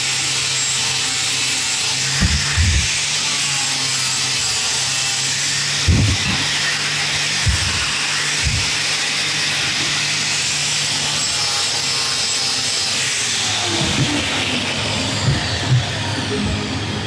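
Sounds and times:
angle grinder grinding metal: 0.0s - 17.0s
knocks: 15.1s - 16.0s.

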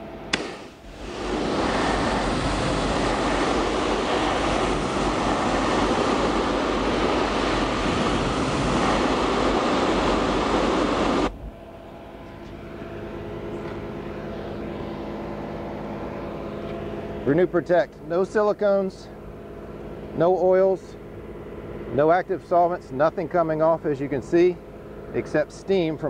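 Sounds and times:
steady hum: 0.0s - 26.0s
pressure washer spray hissing: 0.4s - 11.3s.

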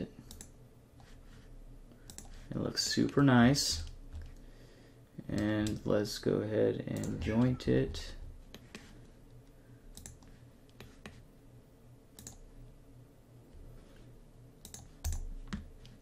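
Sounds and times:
faint low hum: 0.0s - 16.0s
computer mouse clicks: 0.3s - 1.2s, 2.0s - 2.4s, 9.9s - 11.2s, 12.2s - 12.4s, 14.6s - 16.0s.

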